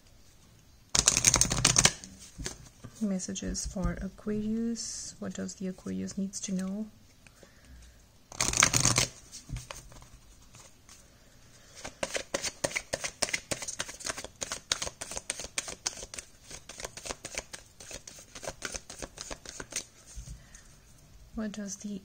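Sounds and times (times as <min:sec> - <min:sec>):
cards rustling: 0:01.0 - 0:03.0, 0:08.3 - 0:11.0, 0:11.6 - 0:20.2.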